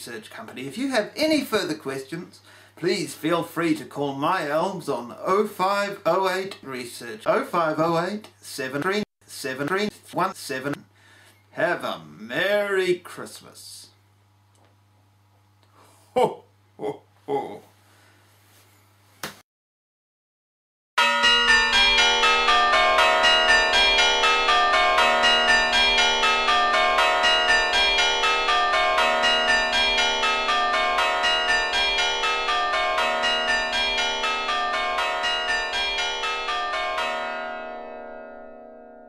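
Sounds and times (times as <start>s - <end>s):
peal of bells ringing: 21.0s - 39.0s.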